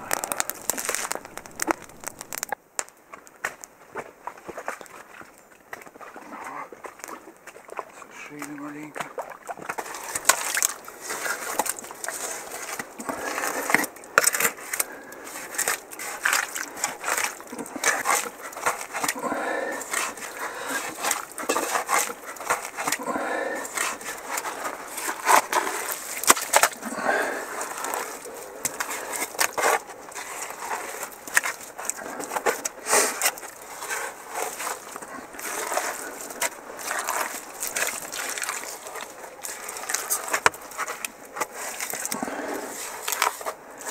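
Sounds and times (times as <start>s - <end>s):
hands digging through wet mud: 0.0s - 2.6s, 5.8s - 43.9s.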